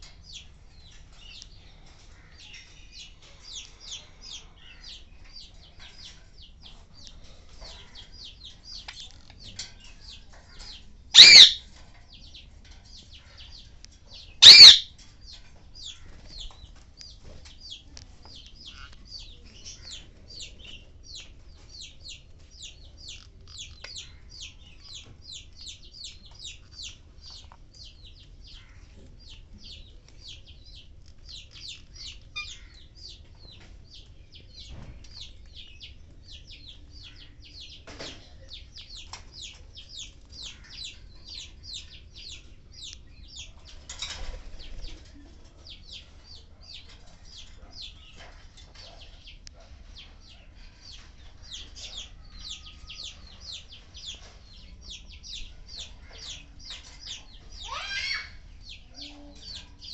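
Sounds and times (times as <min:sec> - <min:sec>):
budgerigars chattering: 0:10.0 - 0:12.4, 0:13.1 - 0:14.9, 0:31.3 - 0:33.1, 0:36.5 - 0:43.5
shrill bird squawk: 0:11.2 - 0:11.6, 0:14.4 - 0:14.9.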